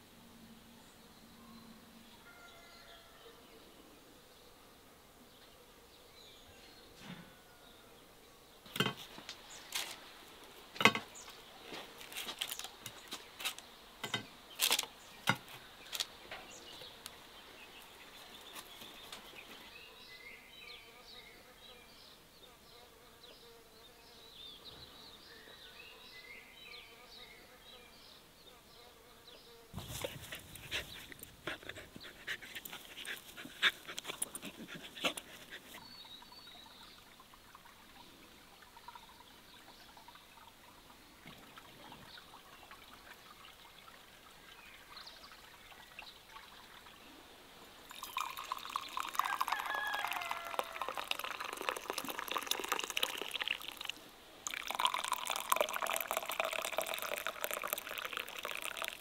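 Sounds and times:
tea pouring into a cup: 47.8 - 59.0.

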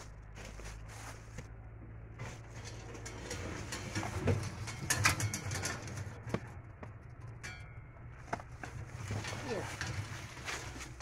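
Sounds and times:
sharp metal clatters: 2.5 - 8.3.

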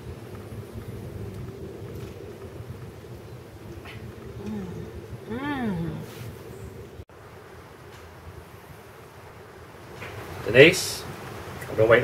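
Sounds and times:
wind buffeting microphone: 0.0 - 7.0
constant low hum: 0.0 - 12.0
outdoor background rumble: 0.0 - 12.0.

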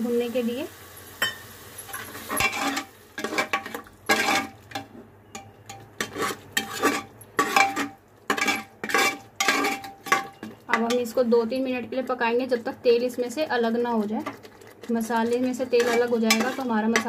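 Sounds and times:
metal ladle scraping a pot: 2.0 - 11.0, 13.7 - 17.0.

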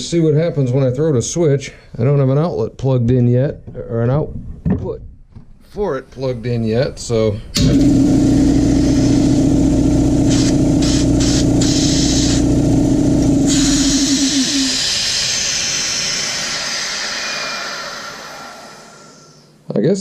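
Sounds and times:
air compressor humming: 7.5 - 19.6
air hissing out: 8.4 - 9.5, 10.2 - 12.6, 13.3 - 19.6.

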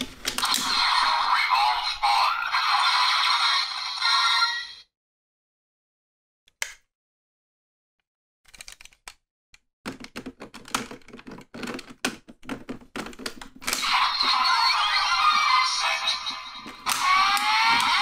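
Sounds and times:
toy electronic sound effects: 13.8 - 18.0.

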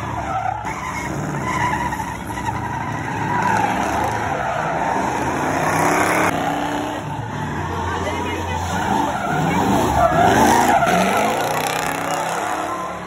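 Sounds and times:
tyres squealing: 0.0 - 13.0
car engine at high revs: 3.1 - 13.0.

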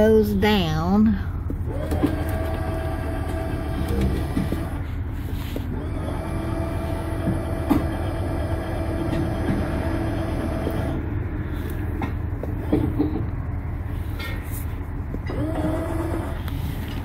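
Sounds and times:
electric motor whine: 1.7 - 4.8, 15.3 - 16.6.

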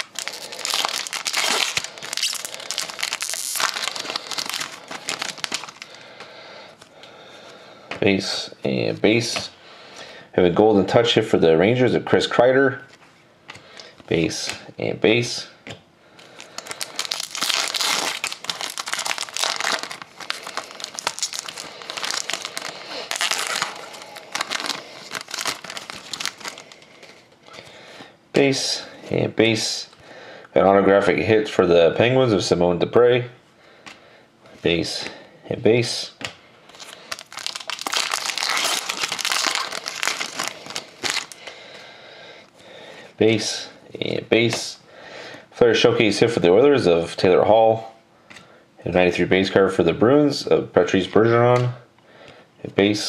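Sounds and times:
foil wrapper crinkling and tearing: 0.0 - 6.0, 16.3 - 27.2, 36.7 - 41.5.

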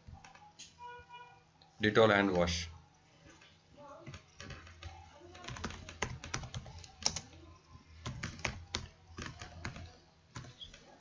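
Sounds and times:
computer keyboard typing: 0.1 - 0.5, 4.0 - 7.4, 8.0 - 10.9.

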